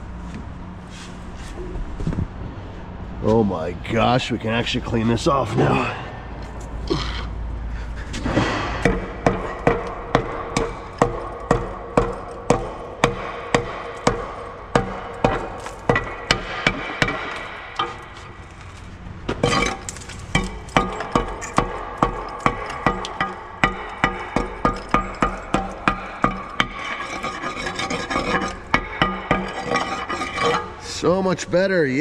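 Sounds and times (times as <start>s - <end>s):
hammer blows on metal: 8.2s - 18.4s.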